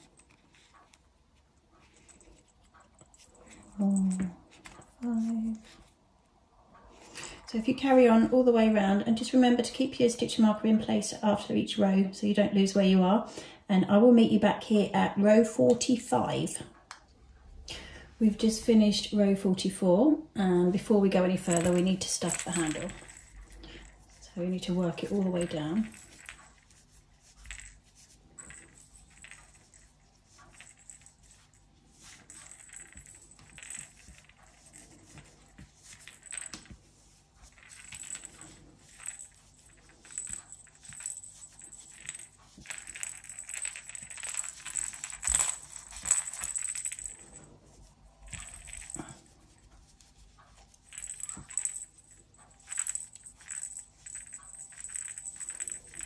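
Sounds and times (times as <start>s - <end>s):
rattle clinking: 21.4s - 26.8s, 28.4s - 36.8s, 37.4s - 47.5s, 48.2s - 49.2s, 50.9s - 56.0s.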